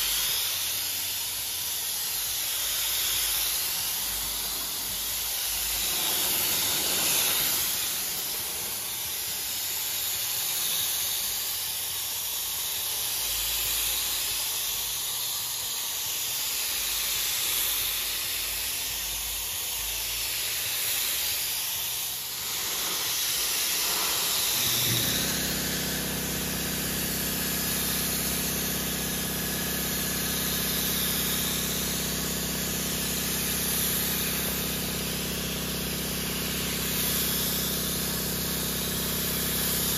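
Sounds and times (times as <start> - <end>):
spray gun hissing: 0.0 - 39.9
low machine hum: 22.0 - 39.9.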